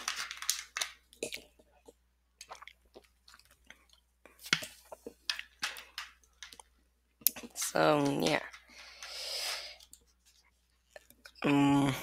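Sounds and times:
soft clicks and crackles: 0:00.0 - 0:09.1.

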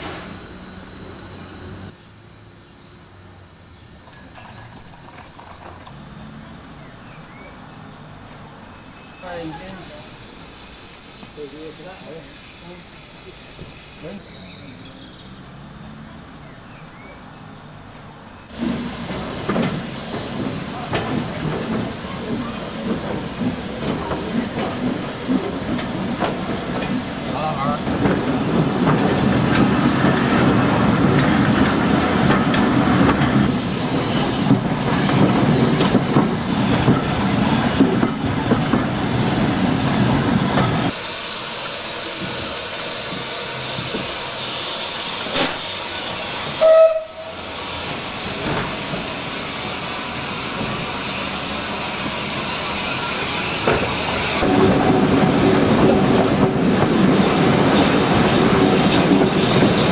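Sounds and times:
steam train running: 0:00.0 - 0:01.9, 0:05.9 - 0:59.9
steam whistle blast: 0:46.6 - 0:47.4.

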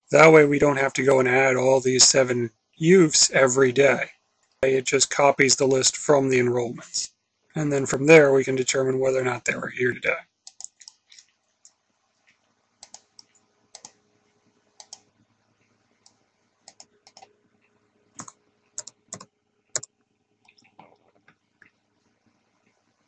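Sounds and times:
computer mouse clicks: 0:10.4 - 0:11.8, 0:12.8 - 0:14.0, 0:14.8 - 0:15.1, 0:16.0 - 0:17.3, 0:18.2 - 0:21.8
keyboard keystrokes: 0:16.7 - 0:17.3, 0:18.2 - 0:19.9.

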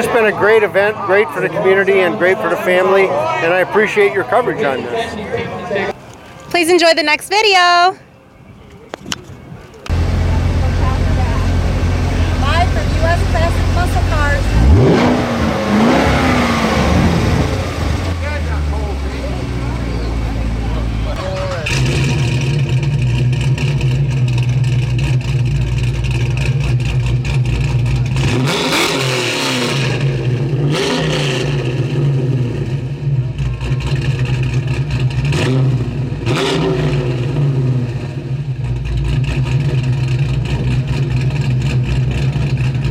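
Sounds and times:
car engine revving: 0:09.9 - 0:42.9.

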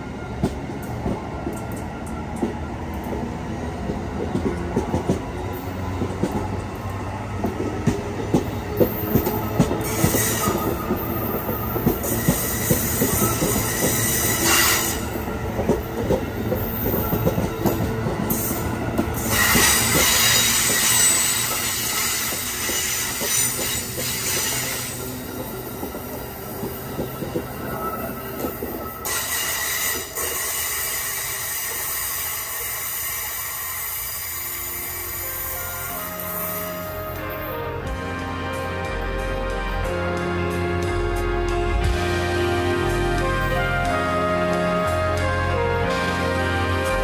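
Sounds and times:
train wheels rumbling on rails: 0:00.0 - 0:47.0
wheel clickety-clack: 0:07.4 - 0:30.7
high wheel squeal: 0:08.8 - 0:15.4, 0:16.6 - 0:36.9.

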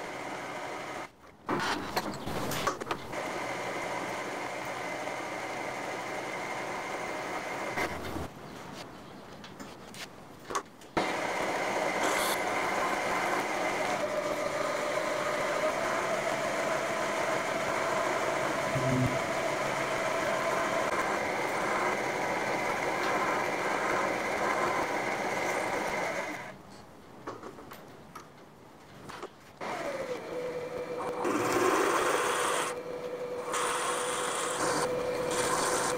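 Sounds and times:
drill whining into metal: 0:11.0 - 0:26.5, 0:29.6 - 0:35.9.

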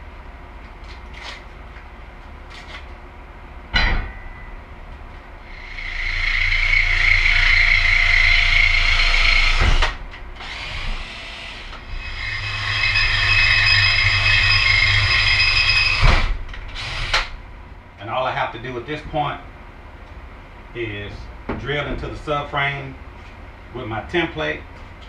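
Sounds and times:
cordless drill boring through steel: 0:05.5 - 0:16.0, 0:16.8 - 0:17.2.

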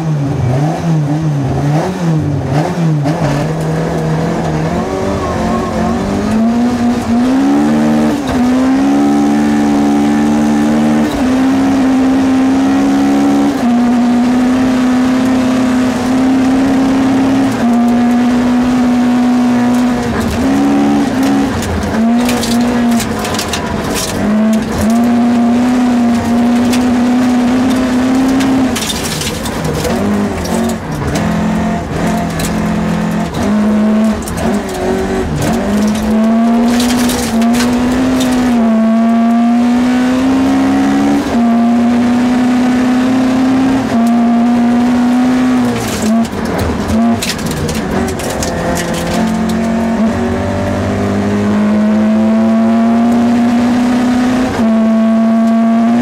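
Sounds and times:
rally car engine revving: 0:00.0 - 0:56.0
gravel rattling against car body: 0:15.2 - 0:42.0, 0:43.7 - 0:50.6.

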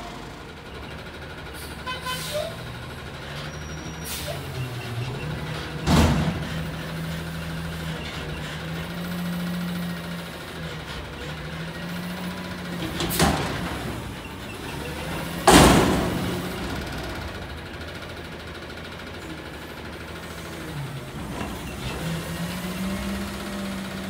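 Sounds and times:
truck engine and hydraulics hum: 0:00.0 - 0:24.0
loud metal bangs from dumpster: 0:05.8 - 0:06.7, 0:15.0 - 0:17.4.

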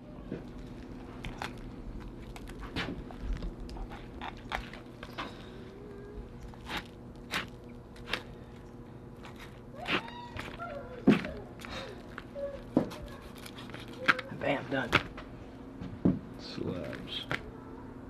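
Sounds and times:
knife crunching through fish bones: 0:00.6 - 0:05.3, 0:06.4 - 0:08.4, 0:09.1 - 0:15.1.

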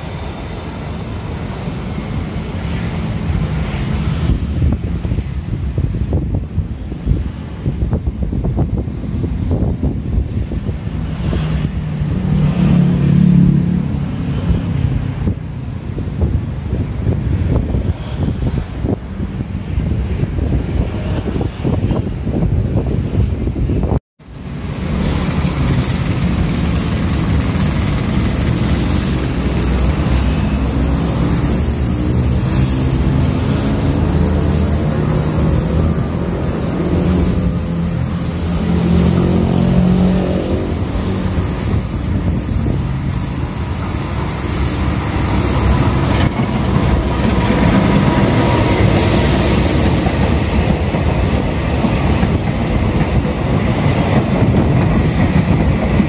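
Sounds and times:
locomotive engine rumbling: 0:24.4 - 0:56.0
train wheels clacking on rails: 0:24.4 - 0:56.0.

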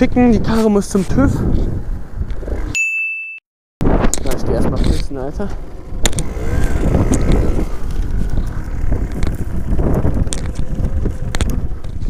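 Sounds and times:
wind buffeting microphone: 0:00.0 - 0:02.8, 0:03.8 - 0:12.0
dirt bike engine at low revs: 0:03.9 - 0:12.0
sharp clicks: 0:06.0 - 0:06.3.

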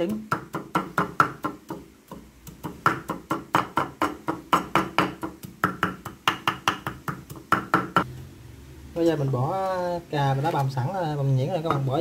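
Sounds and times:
knife chopping on wooden board: 0:00.0 - 0:08.0.

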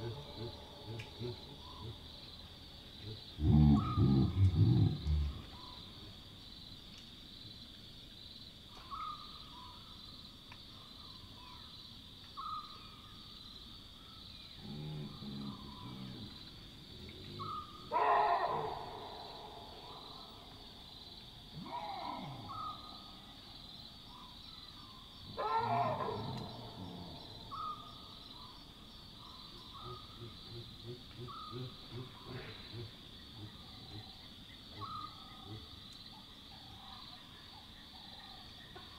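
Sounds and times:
baboon grunts: 0:00.0 - 0:02.1, 0:03.0 - 0:05.5, 0:29.8 - 0:34.2
night insects chirring: 0:00.0 - 0:38.9
baboon alarm barks: 0:17.4 - 0:19.6, 0:25.4 - 0:26.5.

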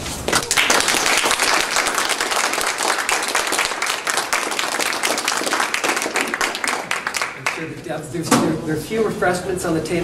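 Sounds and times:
audience applauding: 0:00.3 - 0:07.7.

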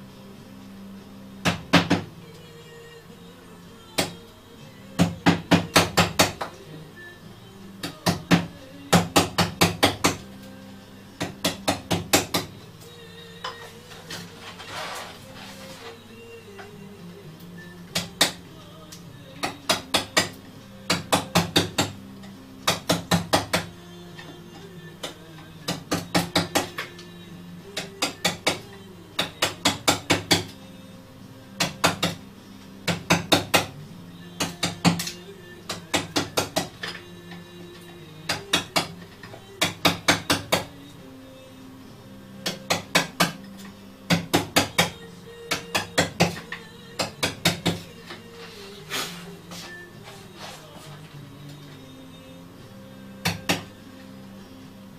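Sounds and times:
background music low notes: 0:00.0 - 0:54.9
mallet tapping wood: 0:25.0 - 0:27.0, 0:53.2 - 0:53.7.

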